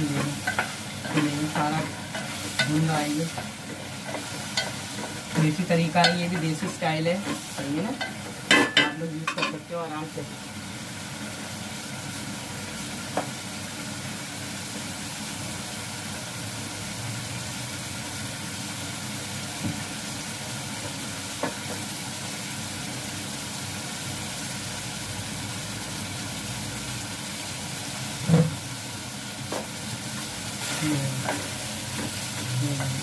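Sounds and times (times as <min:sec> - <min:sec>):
meat sizzling in a pot: 0:00.0 - 0:33.0.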